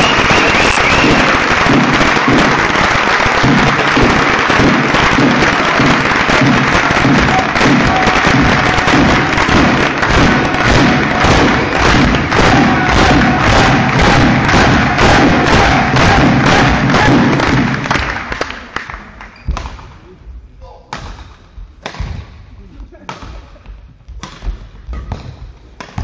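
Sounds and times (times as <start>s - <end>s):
crowd clapping: 0.0s - 20.0s
low thumping beat: 3.4s - 17.8s, 19.6s - 26.0s.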